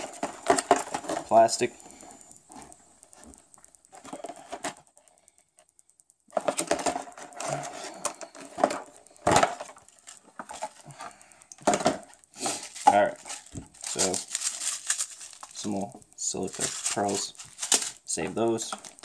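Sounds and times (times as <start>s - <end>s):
plastic packaging crackling: 0.0s - 1.7s, 6.3s - 19.0s.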